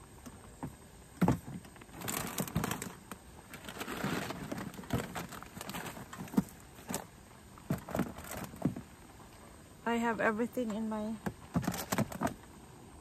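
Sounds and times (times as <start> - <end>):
rustling and rummaging: 0.7 - 8.9.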